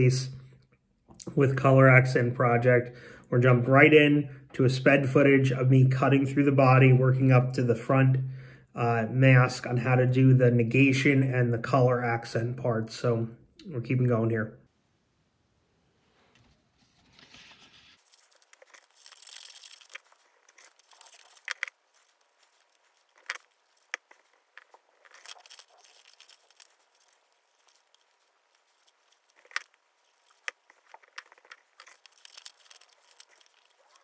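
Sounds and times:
paper rustling and crinkling: 0:16.2 - 0:34.0
scissors snipping paper: 0:18.0 - 0:34.0.

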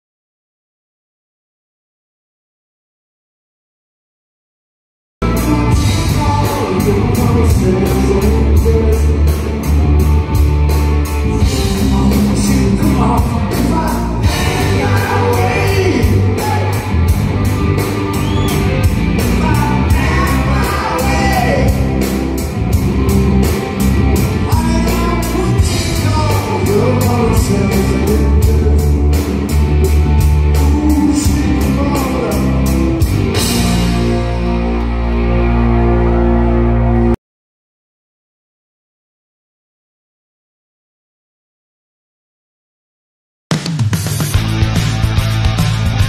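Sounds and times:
live rock band: 0:05.2 - 0:37.2, 0:43.5 - 0:46.0
lead vocal singing: 0:05.3 - 0:09.7, 0:11.2 - 0:17.2, 0:19.2 - 0:22.2, 0:24.4 - 0:29.6, 0:30.4 - 0:32.9.

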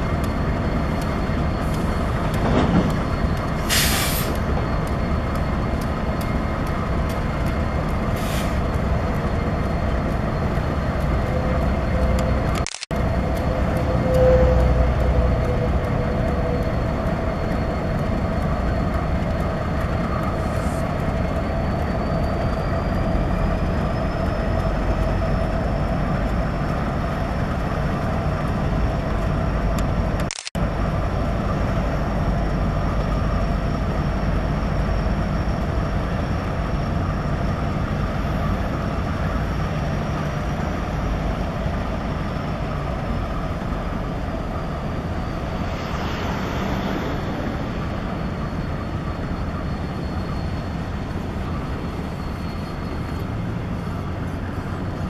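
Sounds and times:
diesel locomotives rumbling: 0:00.0 - 0:55.0
camera click: 0:12.6 - 0:12.8.

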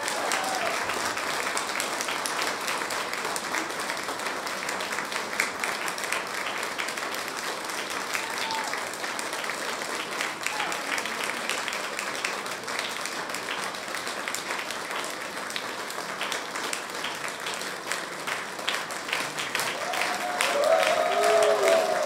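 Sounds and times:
voice over clapping: 0:00.0 - 0:02.4, 0:07.7 - 0:22.0
audience applauding: 0:00.0 - 0:22.0.

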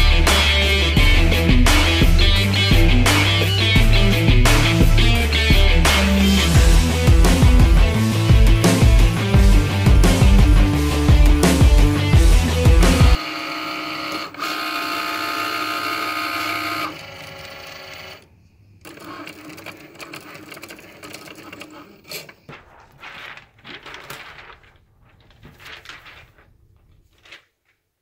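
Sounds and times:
cutting machine motors whirring: 0:13.2 - 0:18.2.

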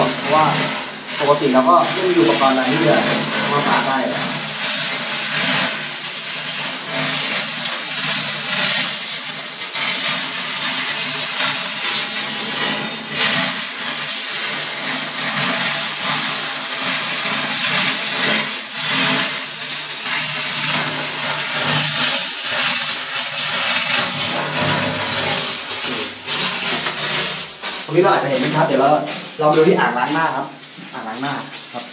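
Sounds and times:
steam cleaner jetting steam: 0:00.0 - 0:31.9.

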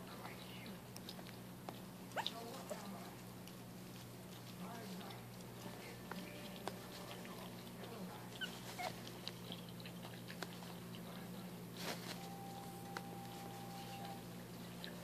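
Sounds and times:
puppies chewing and lapping: 0:00.0 - 0:15.0
steady low hum: 0:00.0 - 0:15.0.

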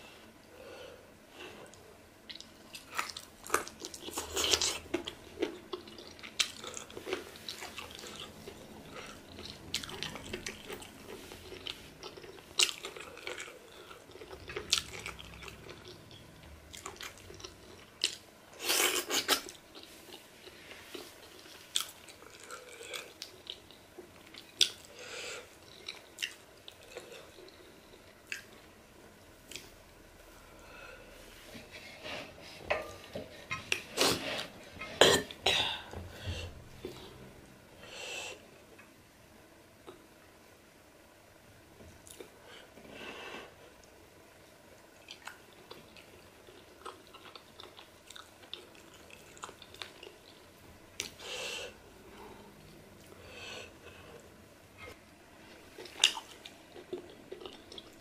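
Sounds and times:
person chewing with wet smacks: 0:01.7 - 0:28.8, 0:29.4 - 0:29.8, 0:42.0 - 0:42.4, 0:44.8 - 0:51.2, 0:54.2 - 0:58.0.

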